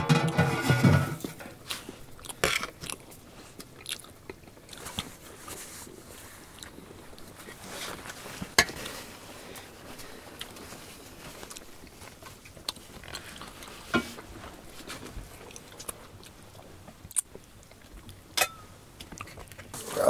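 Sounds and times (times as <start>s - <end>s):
metal lid clattering: 0.0s - 1.5s.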